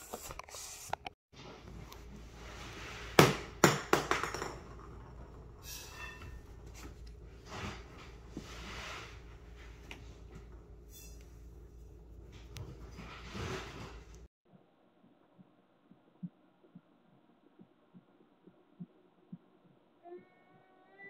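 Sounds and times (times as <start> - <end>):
hard object bouncing on floor: 3.2 - 4.8.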